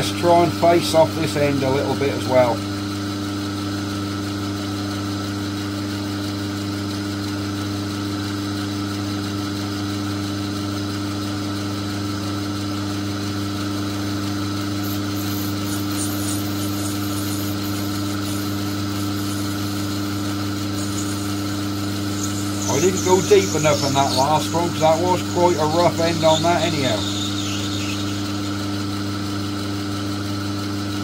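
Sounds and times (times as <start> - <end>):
lathe motor hum: 13.2 - 30.9
cutting tool scratching metal: 14.6 - 28.7.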